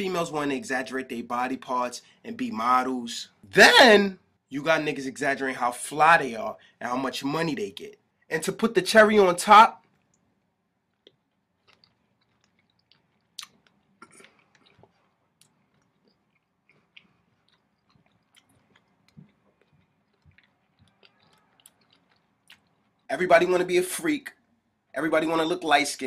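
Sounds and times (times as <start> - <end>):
faint clicks and crackles: 9.8 - 23.1.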